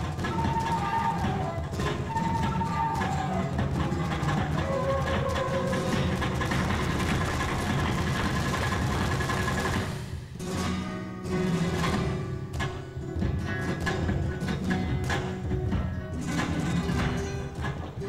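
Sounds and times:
flamenco guitar music: 0.0s - 18.0s.

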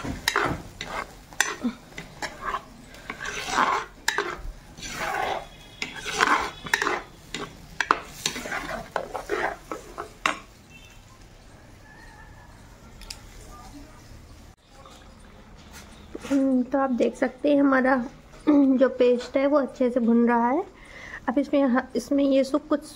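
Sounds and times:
spoon scraping clay pot: 0.0s - 10.5s
light sizzle of frying: 0.0s - 22.9s.

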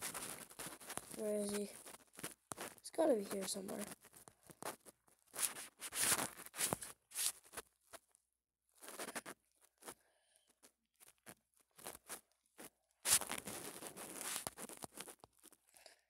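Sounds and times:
rustling near microphone: 0.0s - 7.6s, 13.1s - 15.2s.

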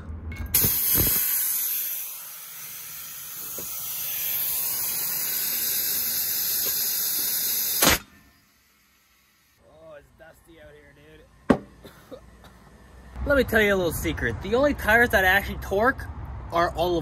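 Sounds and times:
sharp air burst: 0.5s - 9.6s
compressed air hissing: 0.6s - 8.1s
knocks: 11.5s - 11.8s.

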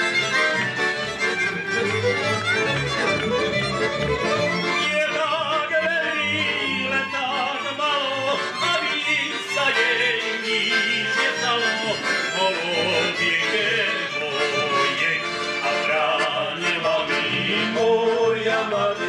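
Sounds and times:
folk band playing lively tune: 0.0s - 19.0s
man singing: 4.6s - 19.0s.

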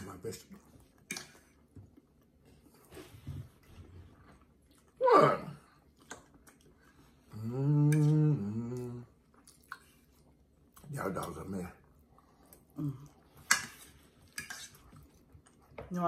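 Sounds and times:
chewing: 0.4s - 5.0s, 5.6s - 15.8s
person humming mmm: 7.3s - 9.2s.

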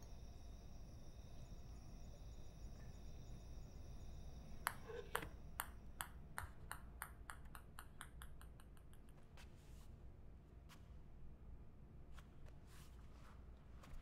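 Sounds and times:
small object bouncing on floor: 4.7s - 9.2s.

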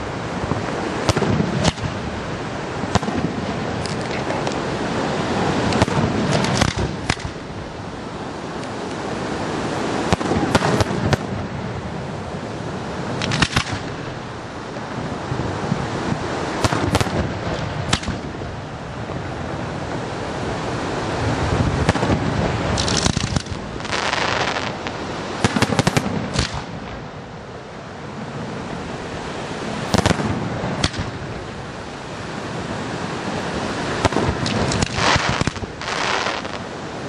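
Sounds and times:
steady rushing noise: 0.0s - 37.0s
firework shells bursting: 5.8s - 7.4s, 13.2s - 13.9s, 21.9s - 24.8s, 25.4s - 26.8s, 29.9s - 31.2s, 34.0s - 36.6s.

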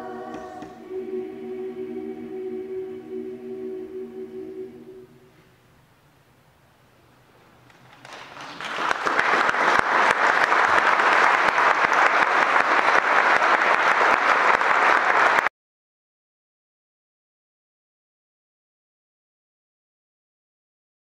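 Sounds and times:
audience applauding: 7.7s - 15.5s.

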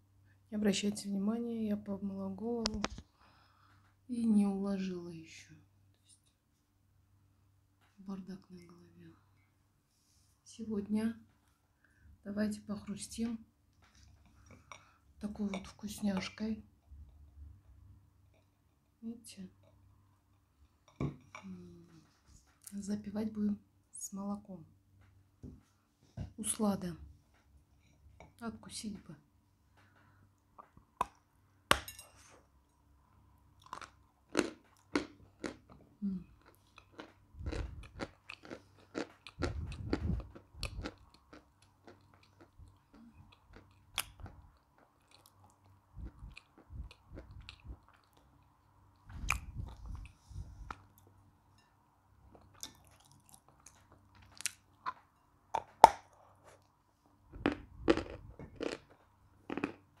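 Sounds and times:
gritty chewing: 33.6s - 51.1s, 52.3s - 55.0s, 57.4s - 59.8s.

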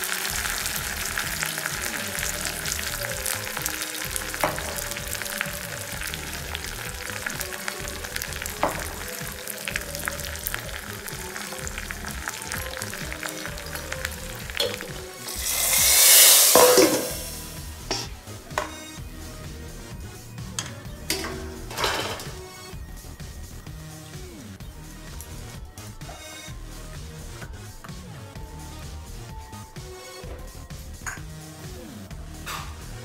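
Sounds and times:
loud hiss: 0.0s - 18.1s
spices sizzling in hot oil: 0.0s - 18.6s
oil crackling and popping: 0.0s - 18.7s.

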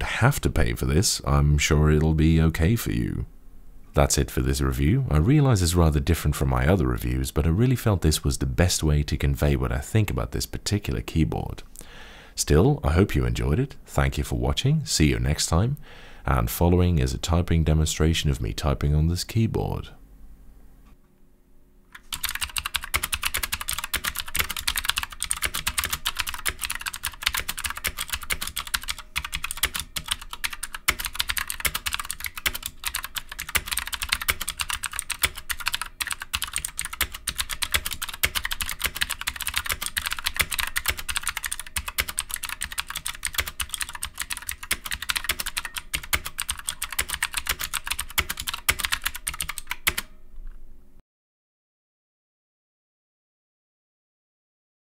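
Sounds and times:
mechanical keyboard typing: 22.0s - 50.1s.

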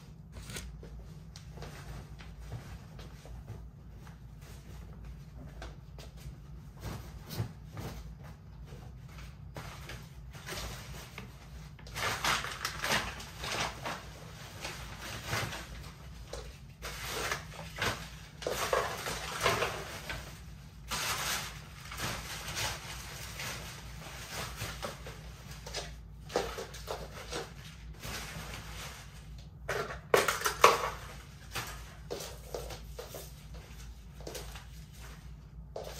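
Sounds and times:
packaging rustling and crinkling: 9.3s - 35.9s.

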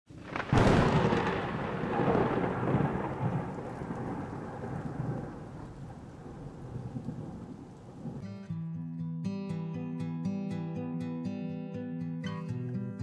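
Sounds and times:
deep boom rumbling: 0.2s - 7.7s.

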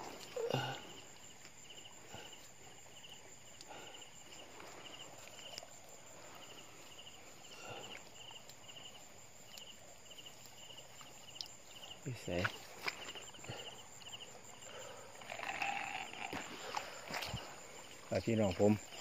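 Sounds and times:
cricket chirping: 0.0s - 19.0s
rustling of wet grass: 0.0s - 19.0s.

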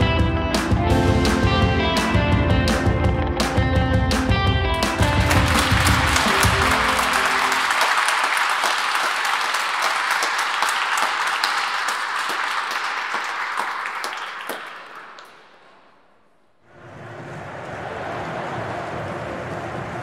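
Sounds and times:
music playing: 0.0s - 8.4s
crowd applauding: 4.8s - 15.8s, 17.2s - 20.0s.

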